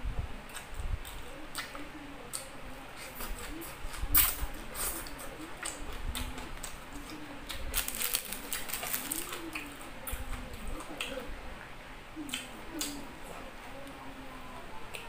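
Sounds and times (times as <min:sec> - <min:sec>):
wet chewing and lip smacking: 0:00.4 - 0:11.2, 0:12.2 - 0:13.0.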